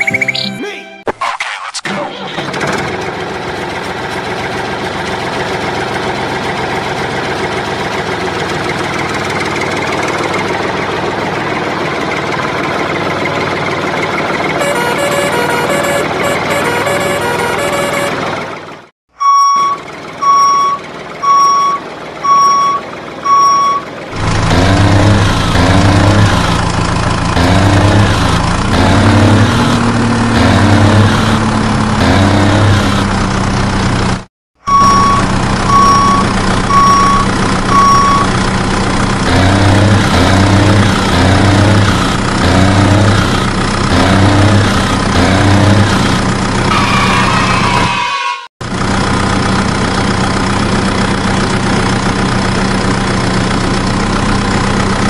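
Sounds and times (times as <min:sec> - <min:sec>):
truck engine chugging: 0:02.2 - 0:55.0
reversing alarm beeping: 0:14.6 - 0:18.2, 0:19.2 - 0:23.9, 0:34.6 - 0:38.3.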